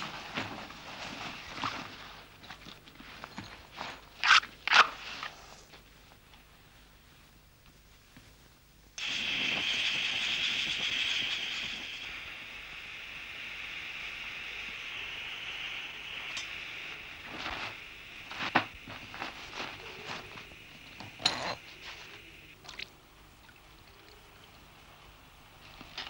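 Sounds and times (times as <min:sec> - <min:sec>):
camping stove hissing: 0:09.0 - 0:26.0.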